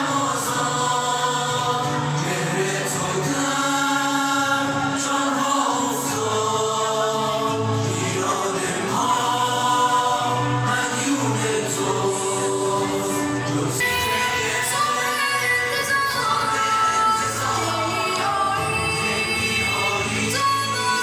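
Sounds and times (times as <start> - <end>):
boys' choir singing in unison: 0.0 - 21.0.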